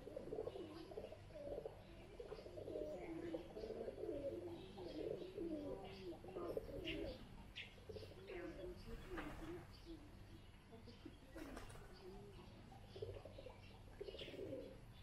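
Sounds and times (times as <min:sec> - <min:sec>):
doves cooing: 0:00.0 - 0:15.0
small birds chirping: 0:00.0 - 0:15.0.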